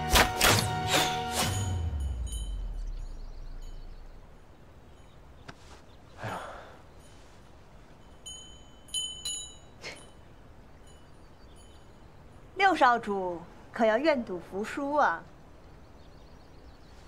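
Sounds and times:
light chime tinkles: 1.5s - 5.4s, 6.9s - 12.8s
deep rumble: 1.8s - 4.7s.

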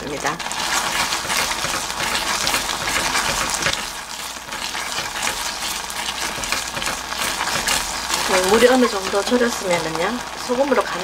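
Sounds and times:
beans bubbling in a pot: 0.0s - 11.0s
wooden spoon stirring in a pot: 0.4s - 11.0s.

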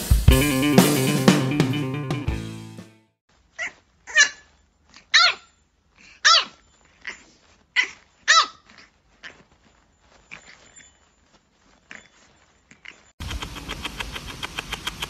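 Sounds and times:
background music: 0.0s - 3.2s.

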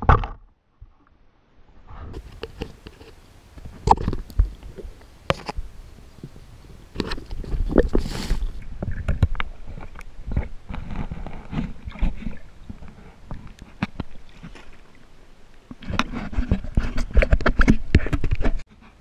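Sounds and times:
muffled underwater knocks and clicks: 2.2s - 8.1s, 8.8s - 14.6s, 15.7s - 18.6s
water splashing: 2.2s - 16.0s.

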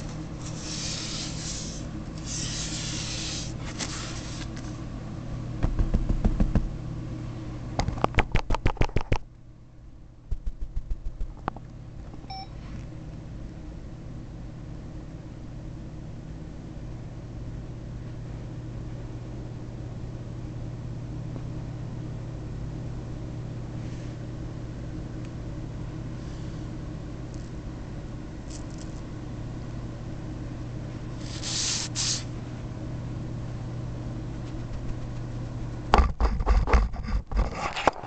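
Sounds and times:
steady low hum: 0.0s - 38.0s
short hiss: 31.2s - 32.3s.

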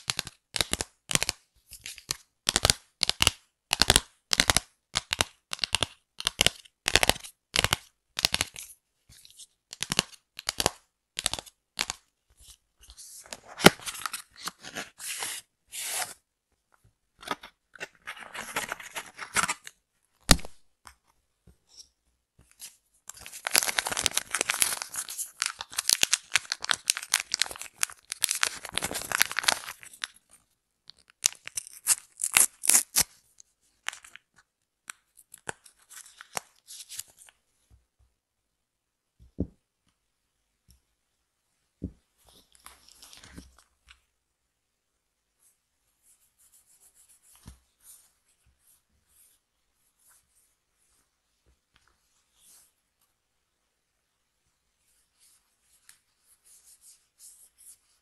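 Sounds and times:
packaging rustling: 23.2s - 30.0s
sachets tearing: 23.2s - 30.1s, 31.2s - 33.0s.

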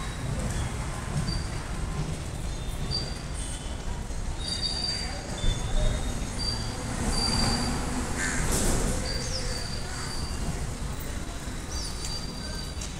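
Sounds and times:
train wheels rumbling on rails: 0.0s - 12.9s
high wheel squeals: 2.5s - 12.9s.

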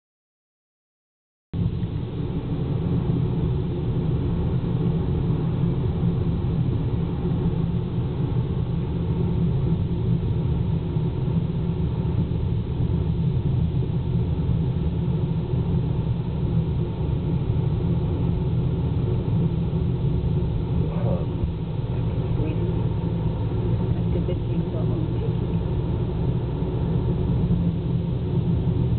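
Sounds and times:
car driving interior rumble: 1.6s - 28.9s.

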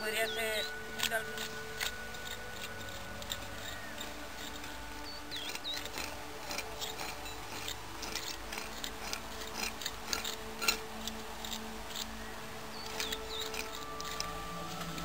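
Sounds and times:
metal trowel scraping soil: 0.0s - 15.0s.

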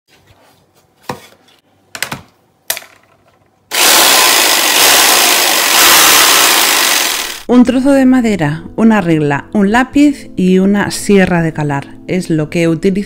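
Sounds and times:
jigsaw cutting plywood: 3.7s - 7.5s.

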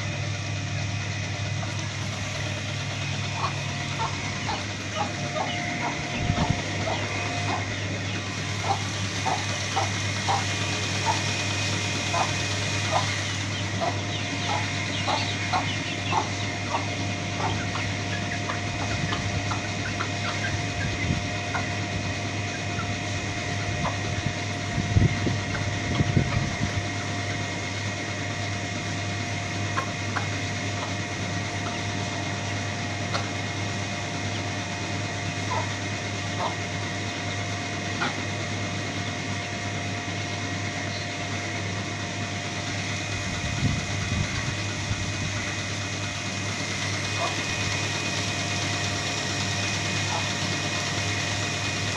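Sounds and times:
hen and chicks calling: 0.0s - 51.9s
steady low hum: 0.0s - 51.9s.

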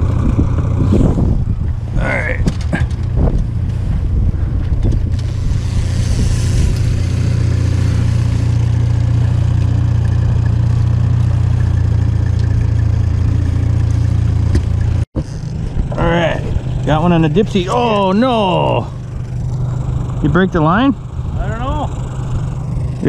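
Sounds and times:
boat engine humming: 0.0s - 23.0s.

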